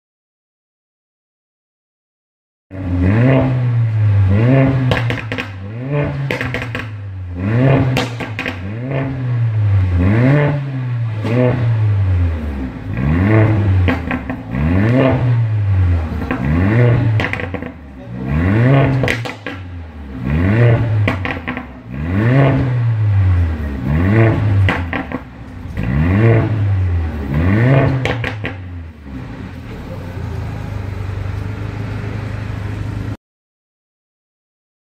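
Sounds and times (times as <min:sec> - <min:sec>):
car engine revving: 0:02.7 - 0:33.2
exhaust crackles and pops: 0:04.6 - 0:07.1, 0:07.7 - 0:09.2, 0:12.9 - 0:15.2, 0:16.0 - 0:17.9, 0:18.7 - 0:19.8, 0:20.6 - 0:21.8, 0:24.2 - 0:26.6, 0:27.5 - 0:28.8.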